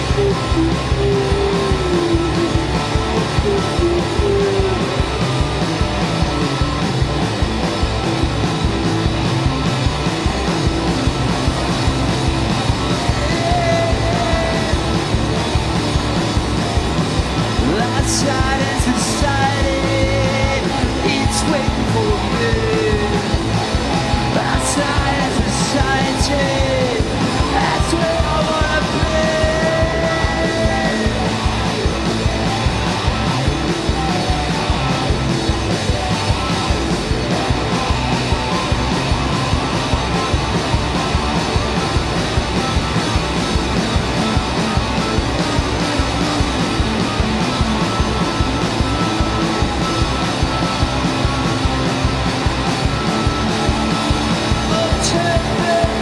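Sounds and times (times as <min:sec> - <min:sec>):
person shouting singing: 0:00.0 - 0:05.4, 0:12.8 - 0:15.4, 0:17.6 - 0:31.7, 0:54.6 - 0:56.0
rock band playing loudly: 0:00.0 - 0:56.0.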